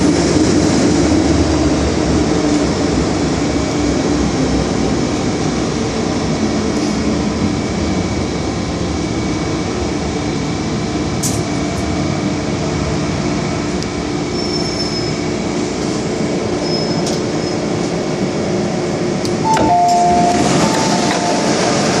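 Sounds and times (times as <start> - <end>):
train rumbling with motor hum: 0.0 - 22.0
two short tones: 19.4 - 22.0.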